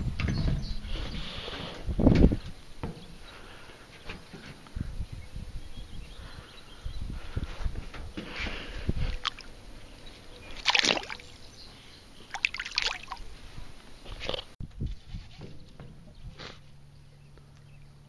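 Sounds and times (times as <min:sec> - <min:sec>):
fish splashing in water: 0:10.4 - 0:11.4, 0:12.3 - 0:13.3.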